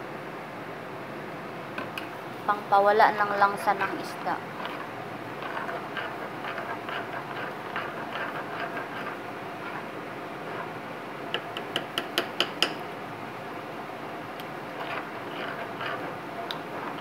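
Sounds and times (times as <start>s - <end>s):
spoon stirring liquid in mortar: 3.8s - 12.8s, 14.4s - 17.0s
spoon tapping against bowl: 11.4s - 12.8s.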